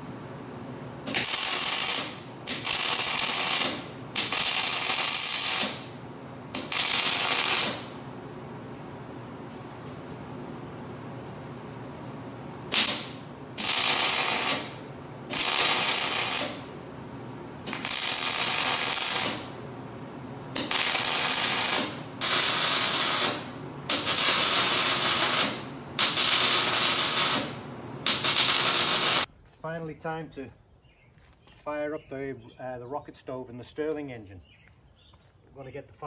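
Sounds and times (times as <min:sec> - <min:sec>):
welding arc crackling and hissing: 0:01.0 - 0:08.0, 0:12.7 - 0:16.8, 0:17.6 - 0:19.6, 0:20.5 - 0:29.3.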